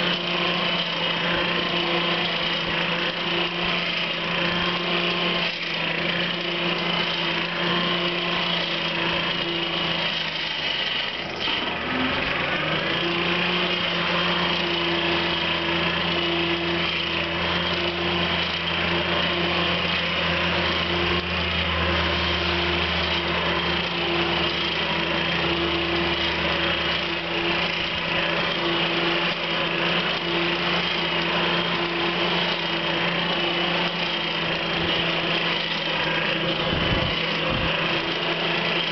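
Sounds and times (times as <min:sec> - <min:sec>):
air blower motor hum: 0:00.0 - 0:38.9.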